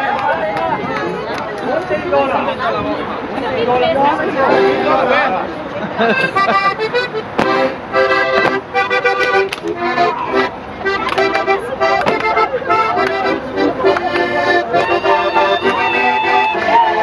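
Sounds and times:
button accordion dance tune: 0:04.5 - 0:05.4, 0:06.1 - 0:17.0
sharp smack: 0:07.4 - 0:07.6.

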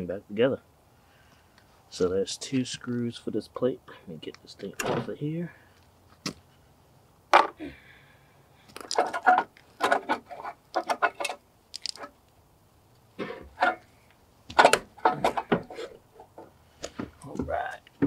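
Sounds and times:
metal cover plate clanking: 0:13.2 - 0:13.8, 0:14.5 - 0:16.5.

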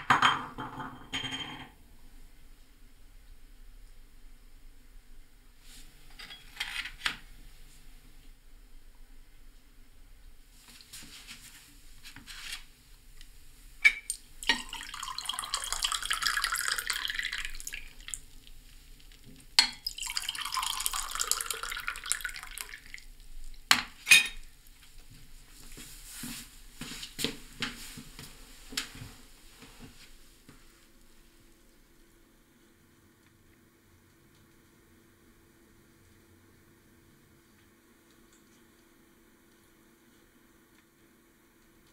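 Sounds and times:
china clinking: 0:00.4 - 0:01.7
tea pouring into cups: 0:13.9 - 0:23.7.

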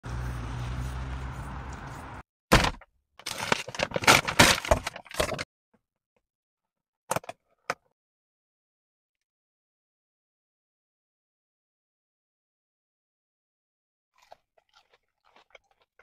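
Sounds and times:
street noise with low hum: 0:00.0 - 0:02.2
paper bag crinkling: 0:03.2 - 0:05.4.

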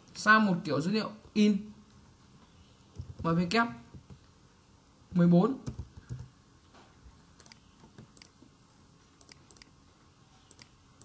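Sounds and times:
keyboard and mouse clicks: 0:02.9 - 0:04.3, 0:05.6 - 0:06.3, 0:07.4 - 0:08.4, 0:09.2 - 0:09.8, 0:10.4 - 0:10.8.

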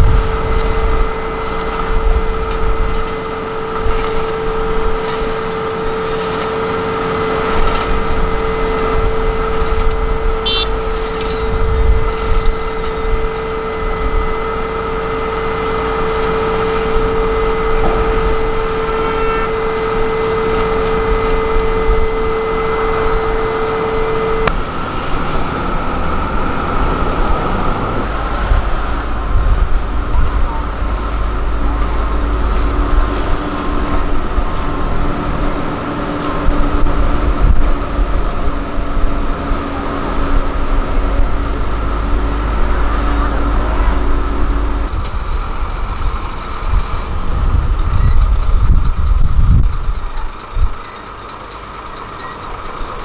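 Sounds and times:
paver engine rumble: 0:00.0 - 0:53.0
steady whine: 0:00.0 - 0:53.0.

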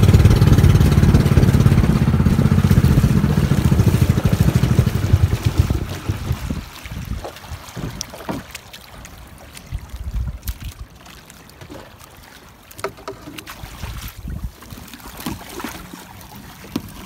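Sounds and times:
wind rumble on microphone: 0:00.0 - 0:08.1, 0:09.6 - 0:11.0, 0:13.6 - 0:14.8
sea water lapping and splashing: 0:00.0 - 0:17.0.

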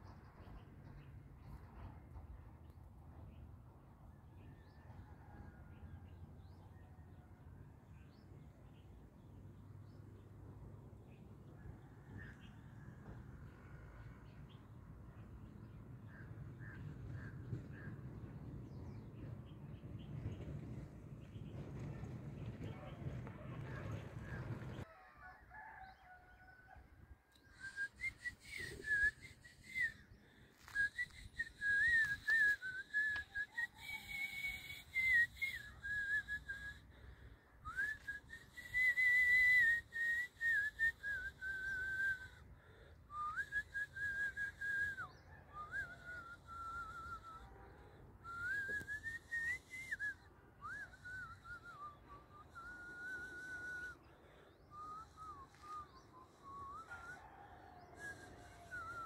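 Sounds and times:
person whistling a tune: 0:27.5 - 0:36.8, 0:37.7 - 0:42.4, 0:43.1 - 0:47.5, 0:48.2 - 0:54.0, 0:54.7 - 0:57.3, 0:58.0 - 0:59.0.

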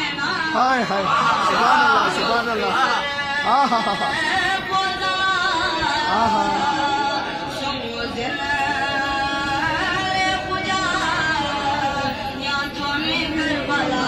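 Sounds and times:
person singing: 0:03.0 - 0:14.0.

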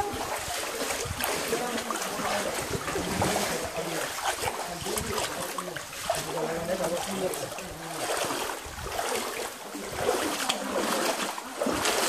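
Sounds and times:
stream water splashing over rocks: 0:00.0 - 0:12.0
wading steps in water: 0:00.0 - 0:12.0.

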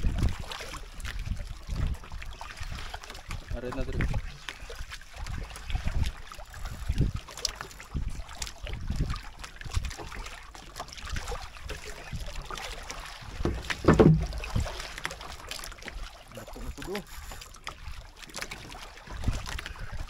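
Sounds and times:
boat knocking on water: 0:12.8 - 0:16.0.

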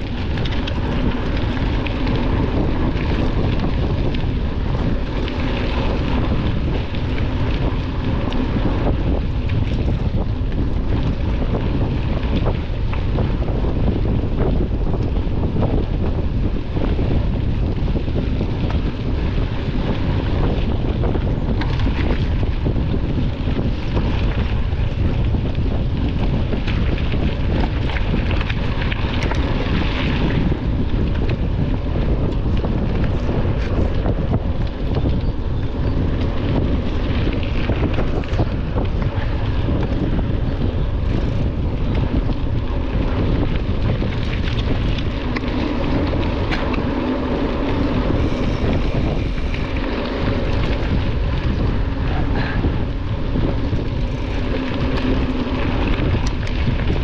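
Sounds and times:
bike clicks and rattles: 0:00.0 - 0:57.0
low rumble: 0:00.0 - 0:57.0
wind buffeting microphone: 0:00.0 - 0:57.0.

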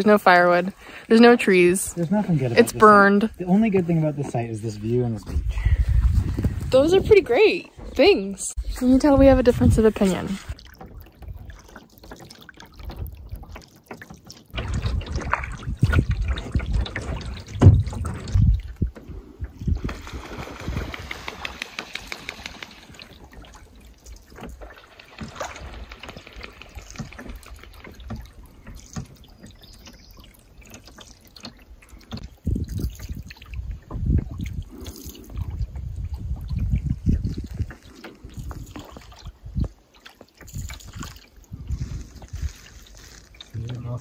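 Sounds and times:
water swishing along hull: 0:00.0 - 0:44.0
water dripping off paddle: 0:10.4 - 0:41.6
low rumble with knocks: 0:14.5 - 0:21.5.

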